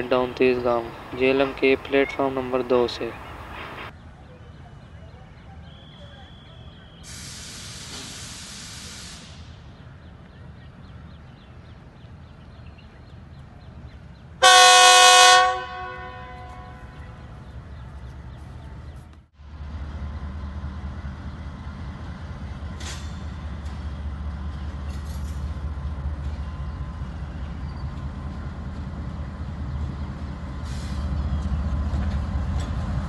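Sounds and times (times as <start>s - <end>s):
locomotive engine rumble: 0.0s - 33.0s
air hiss: 7.0s - 9.7s
locomotive horn blast: 14.4s - 17.2s.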